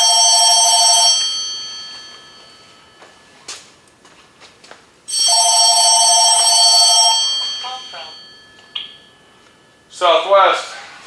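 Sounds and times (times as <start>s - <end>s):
telephone ringing: 0.0s - 3.4s, 5.1s - 9.9s.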